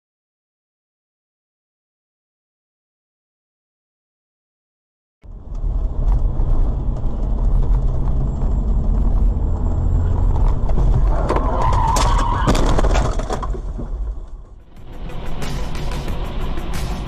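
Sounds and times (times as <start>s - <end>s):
car engine rumble: 5.2s - 17.0s
tyres on the road: 5.2s - 17.0s
high-pitched squeal: 10.8s - 17.0s.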